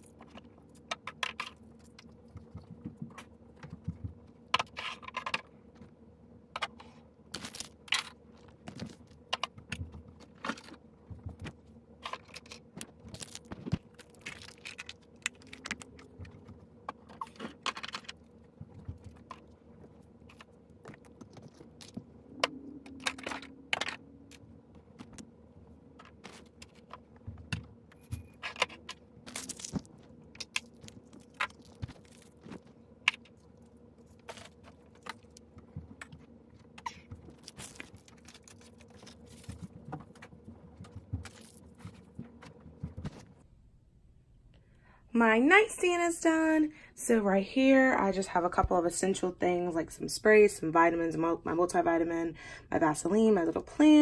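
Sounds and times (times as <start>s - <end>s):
objects clicking and knocking: 0.0s - 5.9s, 6.5s - 25.3s.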